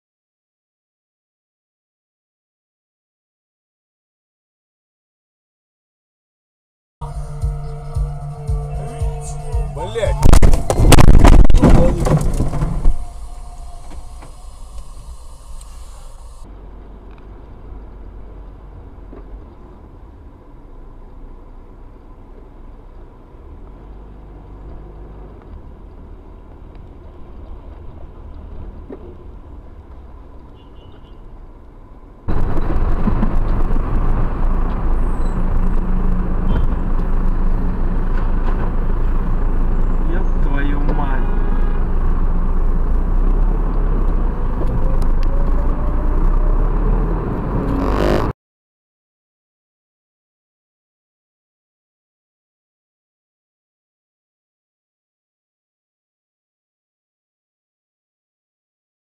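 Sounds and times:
car road and engine noise: 7.0 - 48.4
knocks and clatter: 10.2 - 13.0, 32.3 - 34.9.

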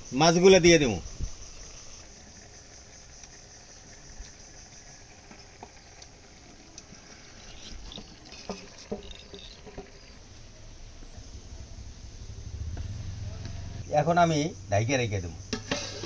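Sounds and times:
stirring in a pot: 3.7 - 10.2
spatula scraping steel plate: 15.5 - 16.0.

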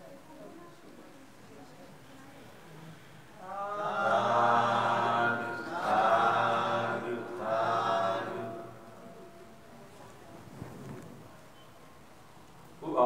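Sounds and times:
voices chanting: 3.4 - 9.2.

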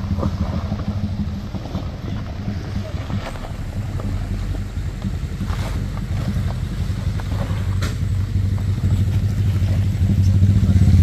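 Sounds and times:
truck engine running at low revs: 0.0 - 11.0.

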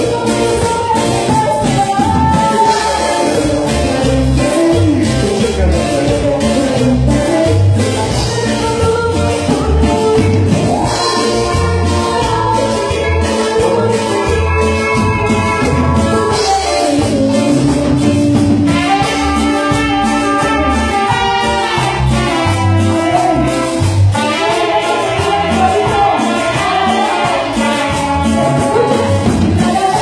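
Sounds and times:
woman singing: 0.0 - 5.2, 6.0 - 19.8, 24.2 - 30.0
latin band playing: 0.0 - 30.0
trumpets: 10.8 - 17.6, 18.5 - 30.0.

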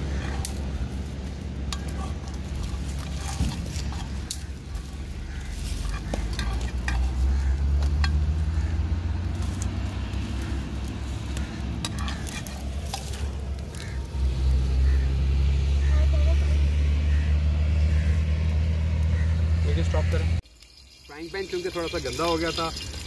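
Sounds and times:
cooking pots and utensils clinking: 0.0 - 13.9, 20.4 - 23.0
road traffic rumble: 0.0 - 23.0.

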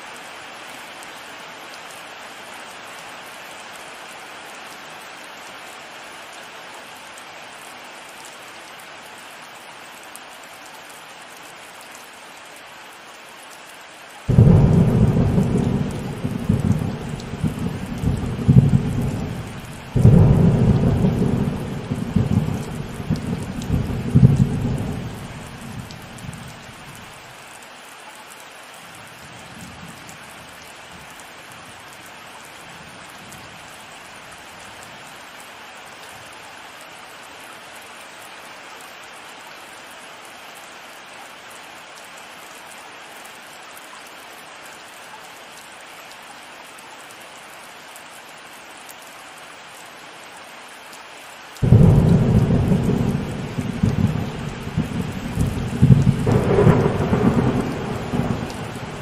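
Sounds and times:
heavy rain hiss: 0.0 - 59.0
thunder rumbling: 14.3 - 26.0, 51.6 - 59.0.

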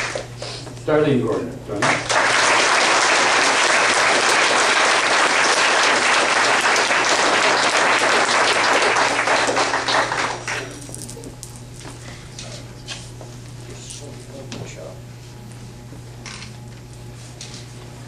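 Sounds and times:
audience applauding: 1.8 - 10.9.

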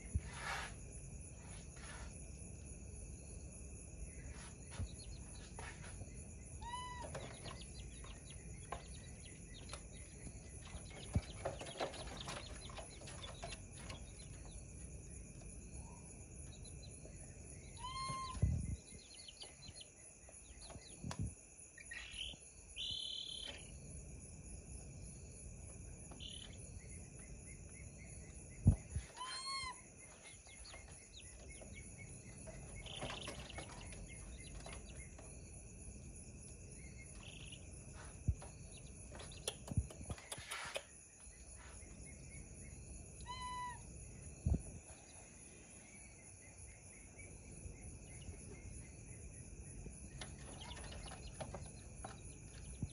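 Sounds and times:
crickets chirring: 0.0 - 52.9
baby monkey whistle-like calls: 6.6 - 7.2, 17.6 - 19.5, 29.0 - 29.8, 43.2 - 43.9.

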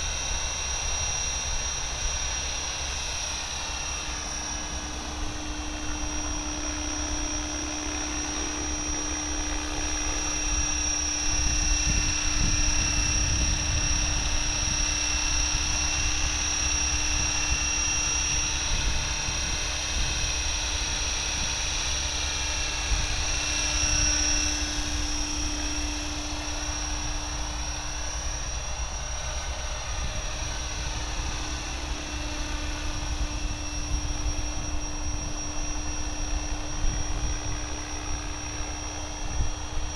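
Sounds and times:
rotors humming: 0.0 - 19.2, 20.8 - 39.9
electric motor high whine: 0.0 - 39.9.

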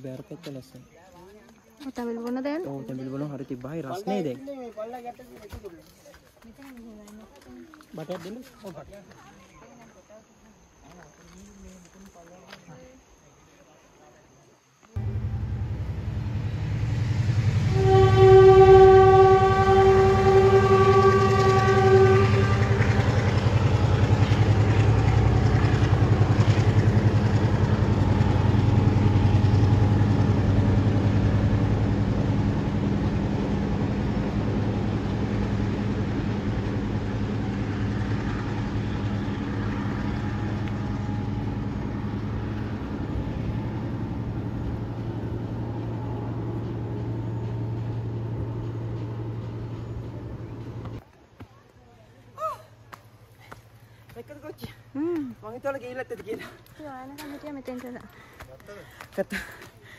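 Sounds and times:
train horn blast: 15.0 - 44.0
locomotive engine rumble: 15.0 - 51.4.

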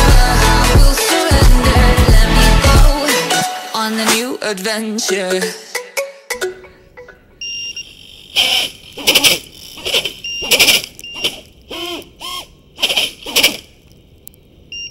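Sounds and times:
high electronic beeps: 7.4 - 8.6, 10.2 - 11.4
drone motors whining: 7.5 - 13.8.

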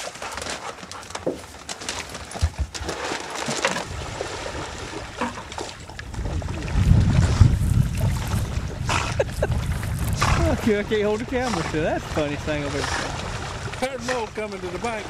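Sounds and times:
water splashing in pond: 0.0 - 15.0
wind rumble on microphone: 3.8 - 15.0.

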